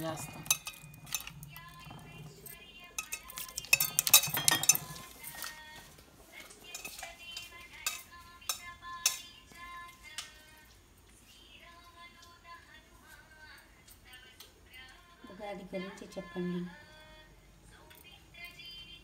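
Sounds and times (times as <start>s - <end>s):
metal bowls and utensils clinking: 0.0s - 10.6s.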